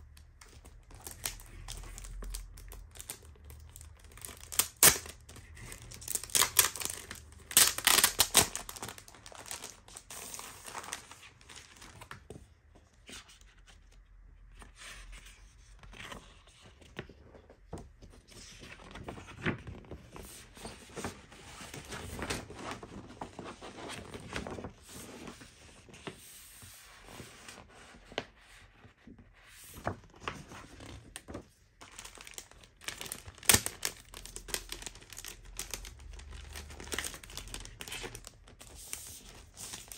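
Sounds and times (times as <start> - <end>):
paper poster rustling: 0.3 - 14.0, 14.6 - 39.9
plastic sleeve crinkling: 0.4 - 12.1, 30.7 - 39.9.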